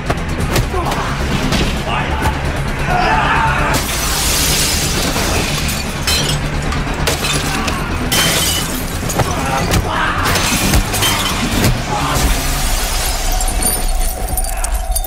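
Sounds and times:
low steady drone: 0.0s - 15.0s
glass shattering: 3.8s - 15.0s.

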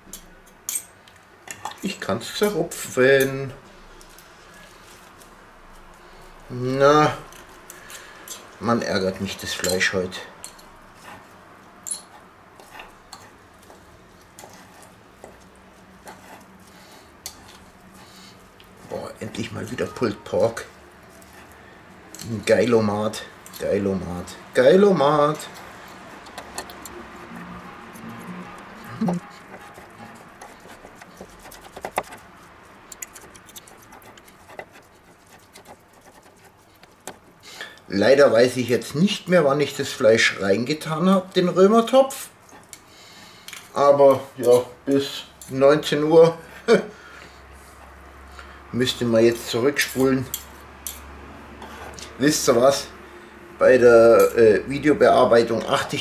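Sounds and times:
forks scraping on wooden board: 10.5s - 22.6s, 25.2s - 37.7s
metal forks clicking: 25.8s - 27.2s.

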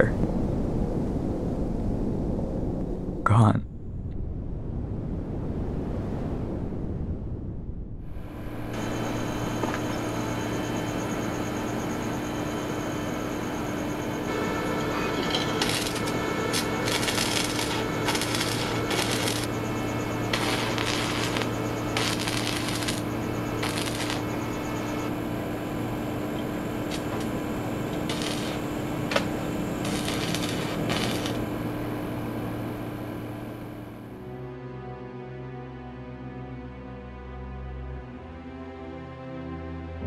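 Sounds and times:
steady low hum: 0.0s - 34.6s
welding arc crackling: 8.2s - 34.0s.

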